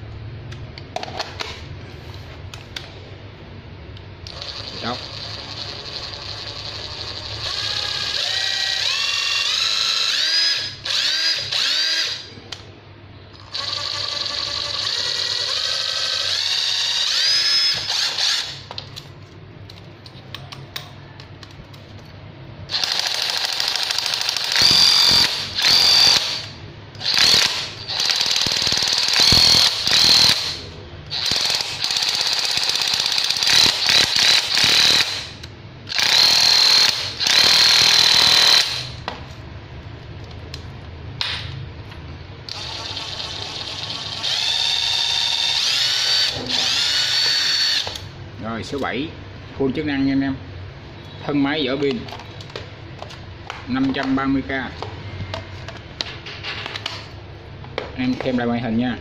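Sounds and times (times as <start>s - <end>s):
impact driver motor whine: 13.5s - 18.7s, 22.7s - 39.0s, 42.5s - 48.1s.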